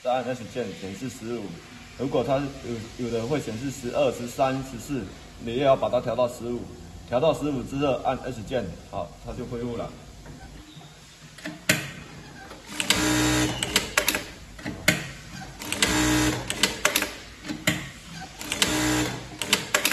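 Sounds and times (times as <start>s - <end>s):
sewing machine stitching: 12.6s - 14.7s, 15.4s - 19.9s.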